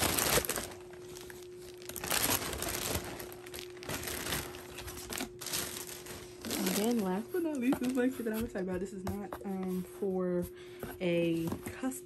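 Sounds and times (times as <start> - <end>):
plastic bag crinkling: 0.0 - 8.2
faint steady hum: 0.0 - 12.0.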